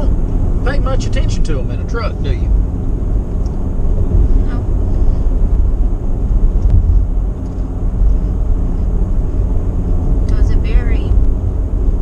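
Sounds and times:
truck cab road and engine rumble: 0.0 - 12.0.

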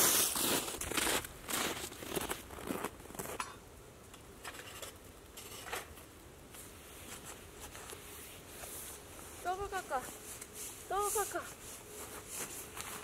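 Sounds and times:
footsteps crunching in snow: 0.0 - 3.4, 6.6 - 13.0
rustling: 4.4 - 13.0.

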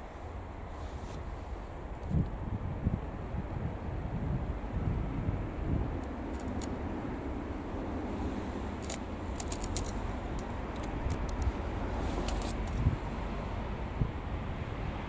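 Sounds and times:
wind buffeting microphone: 1.2 - 15.0
small sharp clicks: 6.0 - 6.8, 8.8 - 11.6.

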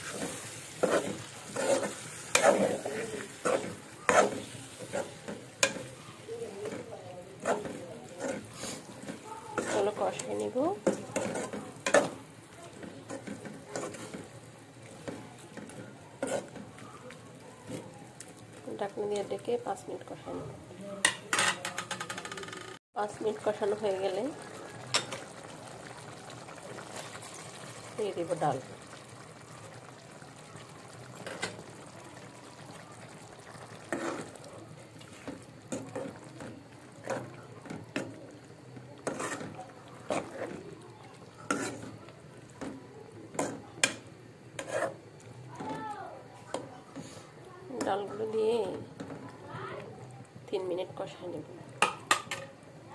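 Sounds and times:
spatula scraping metal pan: 0.0 - 6.0, 6.6 - 12.2, 13.0 - 14.3, 15.6 - 16.7, 33.9 - 34.3, 39.0 - 40.6, 41.4 - 42.0, 44.6 - 45.0
food sizzling in a pan: 0.0 - 21.4, 23.0 - 52.9.

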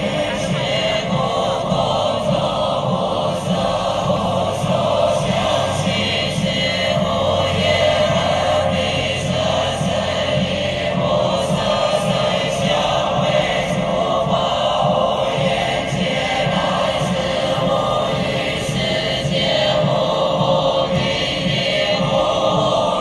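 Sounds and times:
group chanting in unison: 0.0 - 23.0.

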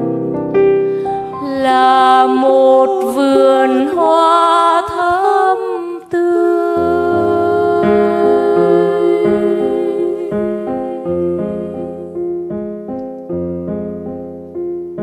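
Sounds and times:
piano chords: 0.0 - 15.0
women singing a hymn: 1.2 - 12.2.

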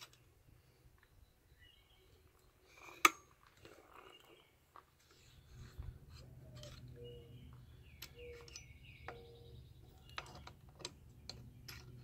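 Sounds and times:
bird chirping: 0.1 - 3.0, 3.7 - 12.0
hand tap clicking and squeaking: 8.0 - 11.9.

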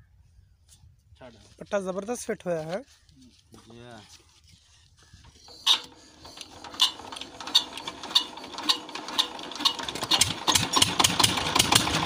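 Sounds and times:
diesel engine hand-cranked: 5.2 - 12.0.

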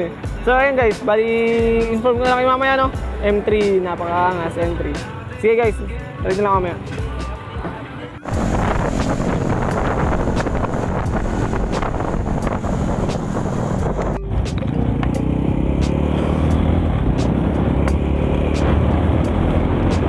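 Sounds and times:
vehicle engine with road noise: 4.4 - 20.0
low engine hum: 8.3 - 20.0.

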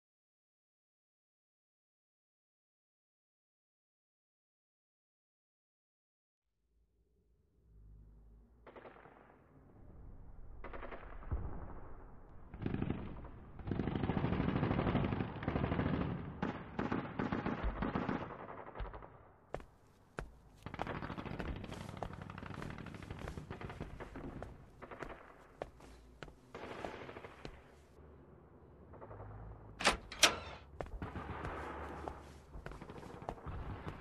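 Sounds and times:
machine-gun fire bursts: 12.6 - 19.0, 31.0 - 32.2.

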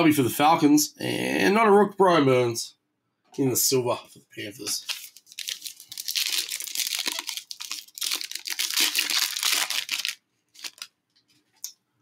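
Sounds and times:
foil wrapper tearing and crinkling: 4.8 - 10.9.

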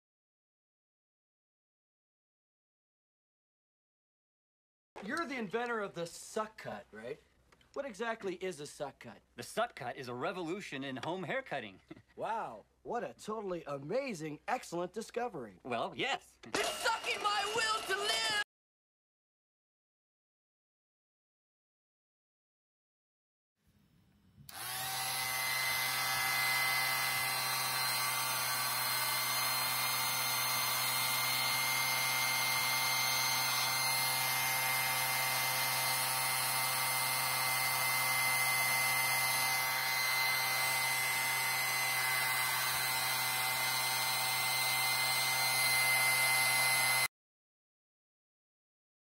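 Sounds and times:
hair trimmer switching on: 24.5 - 47.1
vacuum hair trimmer motor whine: 24.5 - 47.1.

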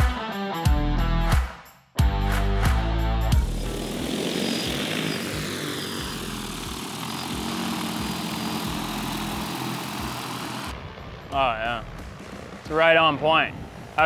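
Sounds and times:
drone rotors whirring: 3.4 - 14.0.

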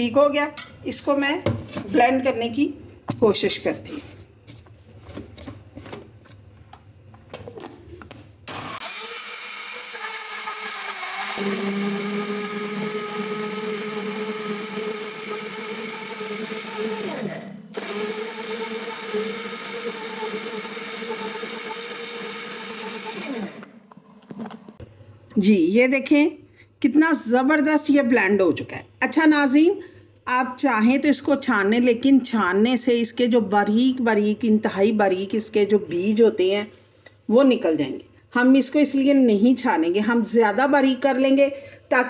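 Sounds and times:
blender motor humming: 8.5 - 24.6.

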